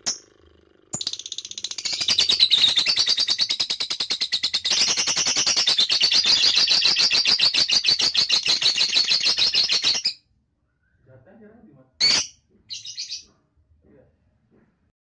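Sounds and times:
lovebird chattering trill: 0:01.0 - 0:10.2, 0:12.0 - 0:13.3.

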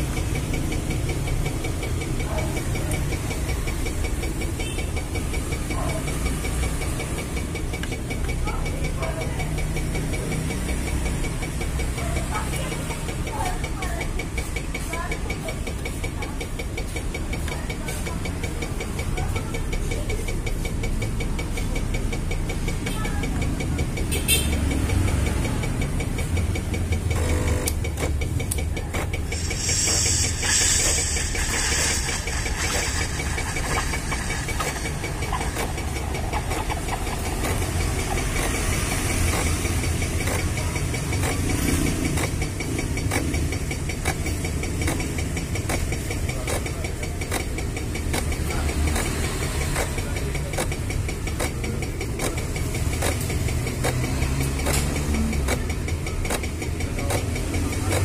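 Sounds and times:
espresso machine pump buzzing: 0:27.0 - 0:28.0, 0:28.9 - 0:42.3
hiss: 0:29.3 - 0:35.7.

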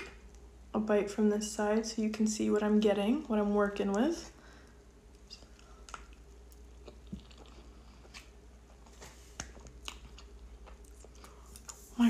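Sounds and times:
faint chewing: 0:05.0 - 0:12.0.

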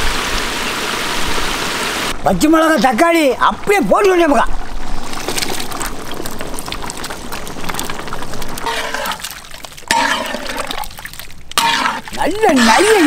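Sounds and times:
broth bubbling: 0:02.6 - 0:13.0
vegetables splashing into pot: 0:05.0 - 0:13.0.

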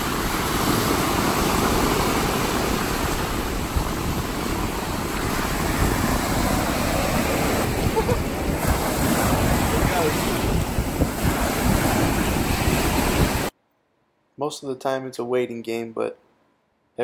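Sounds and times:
small waves washing on sand: 0:00.0 - 0:13.5
wind rumbling on microphone: 0:00.0 - 0:13.5.

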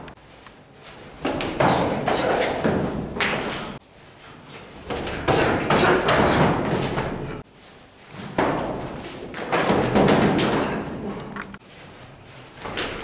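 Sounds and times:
stamping feet: 0:01.0 - 0:03.8, 0:04.7 - 0:07.4, 0:08.1 - 0:11.2
sparring thuds and slaps: 0:01.2 - 0:03.8, 0:04.9 - 0:07.4, 0:08.2 - 0:10.9
bodies hitting the floor: 0:08.2 - 0:10.9.

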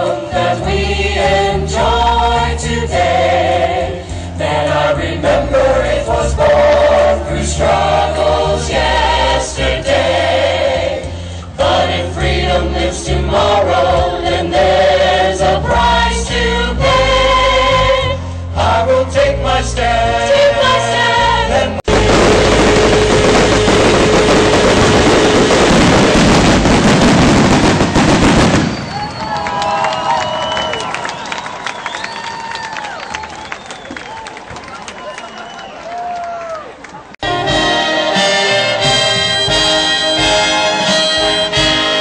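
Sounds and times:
choir singing: 0:00.0 - 0:21.9, 0:37.2 - 0:42.0
low musical accompaniment: 0:37.2 - 0:42.0.

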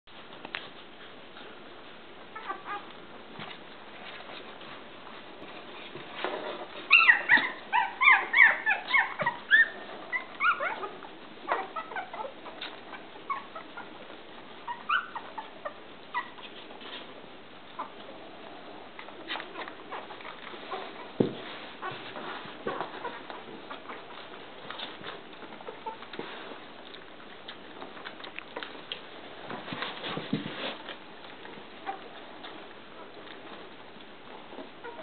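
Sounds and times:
puppies squeaking and whimpering: 0:02.3 - 0:02.9, 0:06.8 - 0:16.7, 0:21.8 - 0:26.2, 0:31.8 - 0:33.2, 0:34.5 - 0:35.0.

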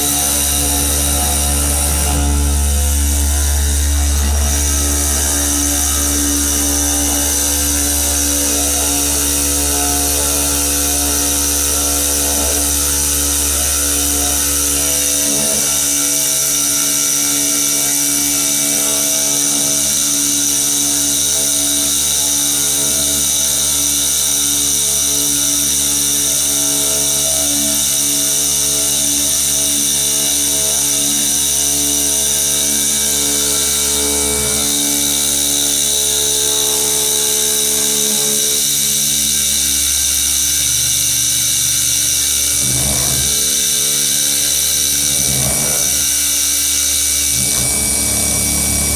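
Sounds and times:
low hum: 0:00.0 - 0:48.9
machining spindle whine: 0:00.0 - 0:48.9.

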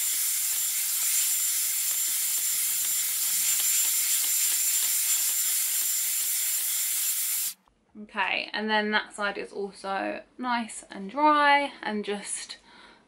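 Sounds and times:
hair styler hot air rushing: 0:00.0 - 0:07.6.

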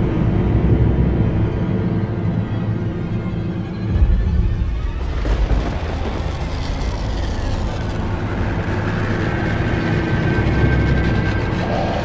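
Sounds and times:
deep thunder-like rumble: 0:03.9 - 0:12.0.

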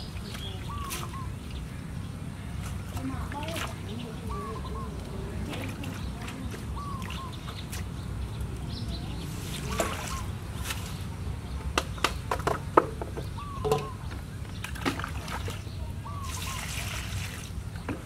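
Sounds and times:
water splashing in a metal basin: 0:02.6 - 0:04.5, 0:05.3 - 0:07.9, 0:09.5 - 0:10.9, 0:13.6 - 0:14.0, 0:14.6 - 0:18.0
metal basin knocks and clinks: 0:12.4 - 0:14.0.

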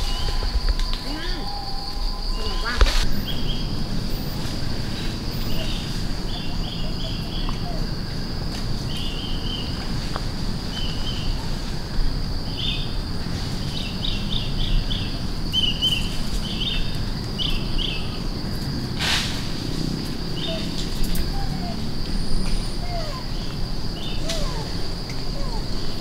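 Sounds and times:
high-pitched insect drone: 0:00.0 - 0:18.8
low rumbling background: 0:00.0 - 0:26.0.

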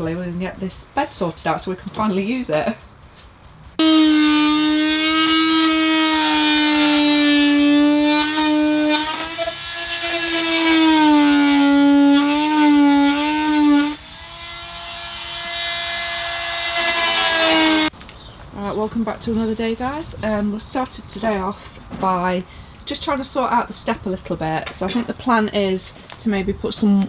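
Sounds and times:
power tool motor: 0:03.8 - 0:17.9.

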